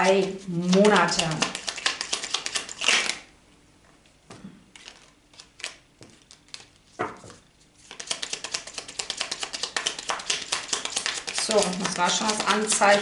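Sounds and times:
cards shuffled by hand: 0:00.6 - 0:03.3, 0:04.7 - 0:13.0
cards riffled clicking: 0:00.7 - 0:03.2, 0:07.8 - 0:13.0.

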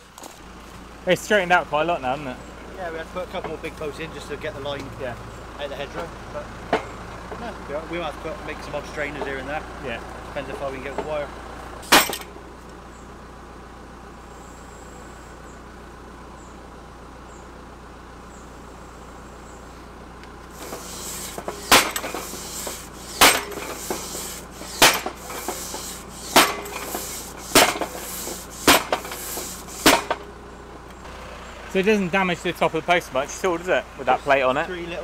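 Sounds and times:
tractor engine ticking over: 0:00.0 - 0:13.4, 0:14.2 - 0:35.0
hammer striking wooden fence post: 0:21.1 - 0:30.3.

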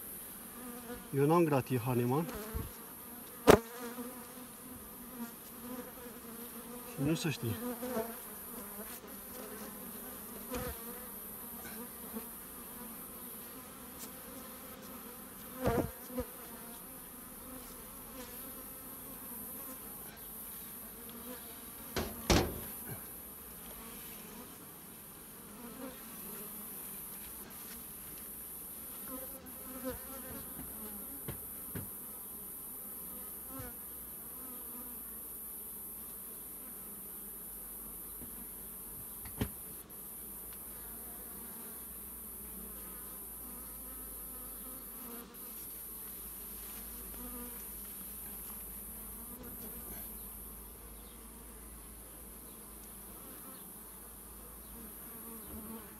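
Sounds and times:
bees buzzing: 0:00.0 - 0:32.3
sharp knocks: 0:22.0 - 0:23.0.

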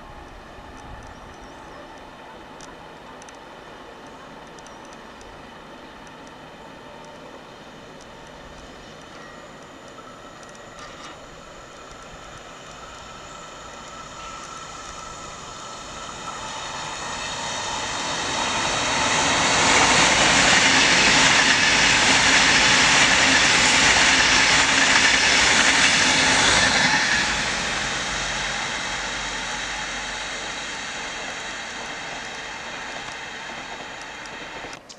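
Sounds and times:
high-speed train passing: 0:00.0 - 0:34.9
wheels rushing on rail: 0:00.0 - 0:34.9.

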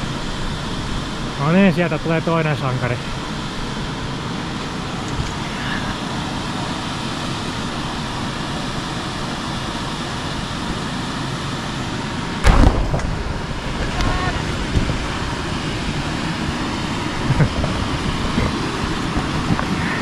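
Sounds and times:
wind noise on microphone: 0:12.4 - 0:20.0.

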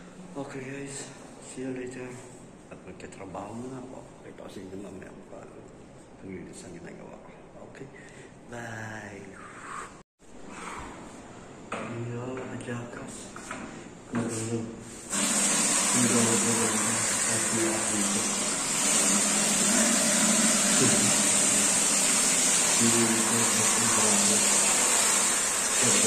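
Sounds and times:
water spraying: 0:15.1 - 0:26.0.

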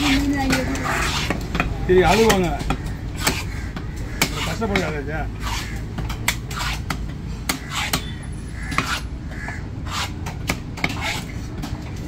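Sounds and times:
knife chopping on wooden block: 0:00.5 - 0:08.1, 0:08.7 - 0:09.0.

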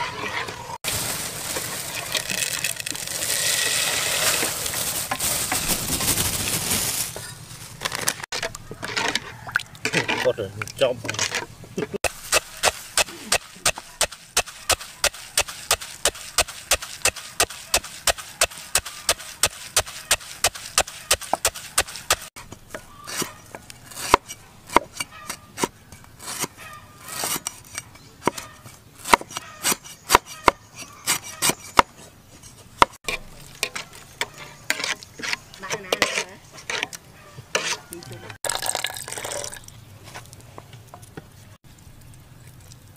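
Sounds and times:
pestle pounding in wooden mortar: 0:12.0 - 0:22.8.

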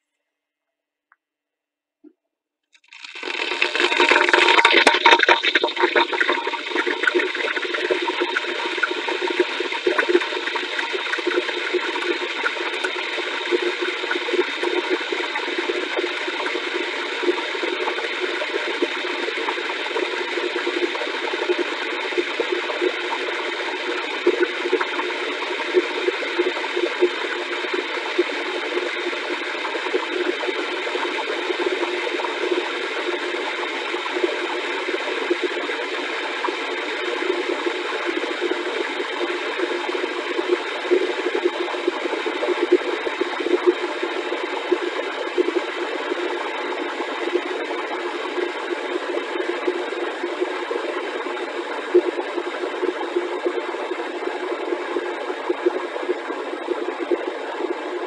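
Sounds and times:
small crackles in kettle: 0:02.8 - 0:05.4
electric kettle heating water: 0:02.8 - 0:58.0.

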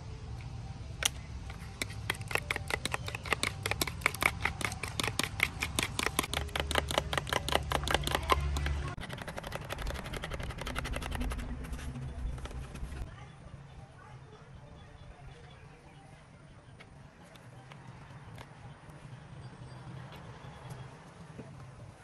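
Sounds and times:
spoon clicking against plastic tub: 0:01.8 - 0:10.0.

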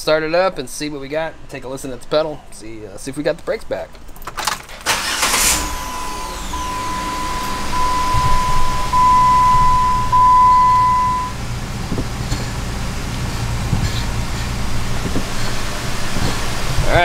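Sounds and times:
car engine idling: 0:04.9 - 0:17.0
electronic warning tone: 0:05.6 - 0:11.4.

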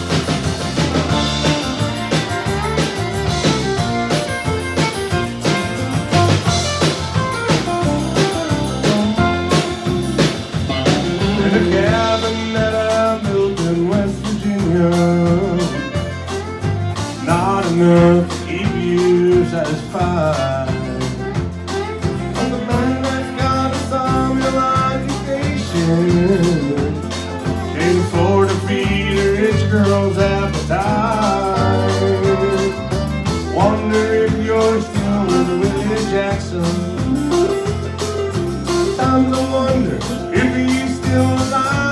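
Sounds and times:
acoustic guitar: 0:00.0 - 0:41.9
drums with steady beat: 0:00.0 - 0:41.9
fiddle: 0:00.0 - 0:41.9.

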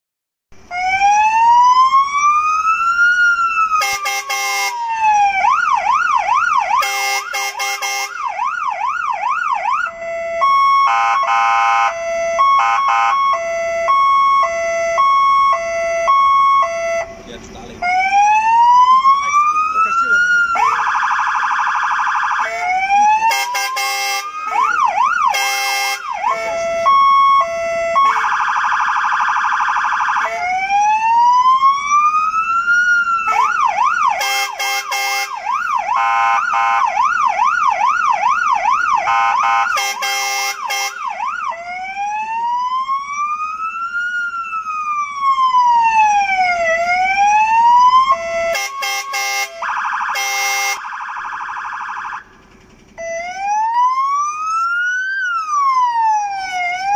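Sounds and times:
fire engine siren: 0:00.6 - 0:56.9
horn blasts: 0:03.8 - 0:04.8, 0:06.8 - 0:08.2, 0:22.4 - 0:26.9, 0:28.0 - 0:28.4, 0:33.3 - 0:36.9, 0:39.0 - 0:41.1, 0:48.5 - 0:50.8.

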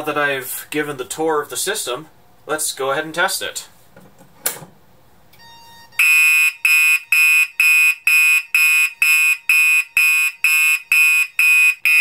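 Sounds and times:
fire alarm horn pulsing: 0:05.4 - 0:12.0.

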